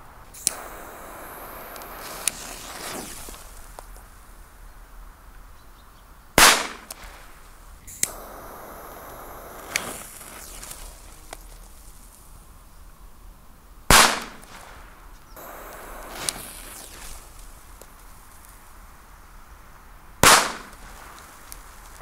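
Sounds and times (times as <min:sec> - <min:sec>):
firecracker bangs: 0:00.0 - 0:03.9, 0:06.4 - 0:11.5, 0:13.9 - 0:17.8, 0:20.2 - 0:22.0
torch lighter clicking and hissing: 0:00.3 - 0:04.2, 0:06.4 - 0:12.3, 0:14.0 - 0:18.6, 0:20.2 - 0:22.0.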